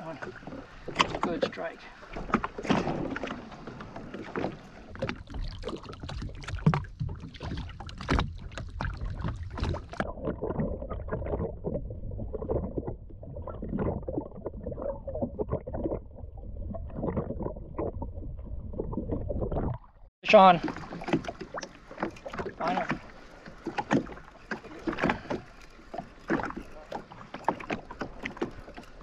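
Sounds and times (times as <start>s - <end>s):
muffled underwater churning: 0.0s - 29.0s
water sloshing against boat hull: 0.0s - 29.0s.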